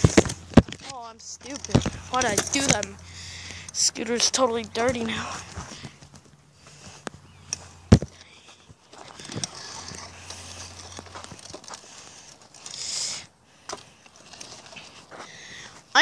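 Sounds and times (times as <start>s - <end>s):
scooter scraping on gravel: 0.0s - 16.0s.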